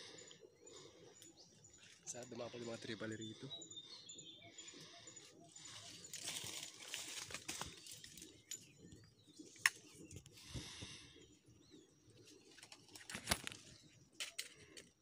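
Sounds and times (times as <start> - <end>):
dry leaves rustling and crackling: 6.2 - 8.1.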